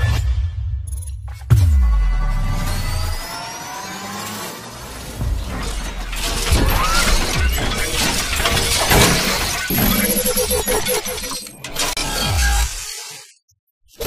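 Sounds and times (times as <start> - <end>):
crashing shattering hits: 4.8 - 10.2
music: 5.2 - 9.6.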